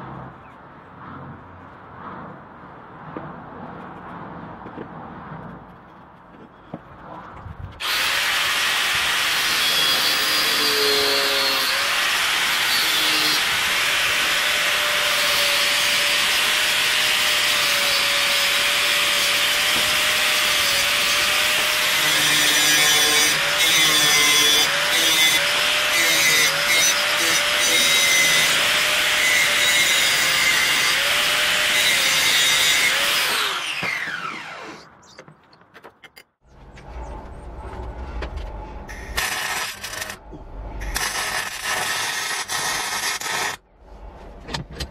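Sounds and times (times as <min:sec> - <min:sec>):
angle grinder grinding steel: 0:07.8 - 0:35.2, 0:38.9 - 0:43.6.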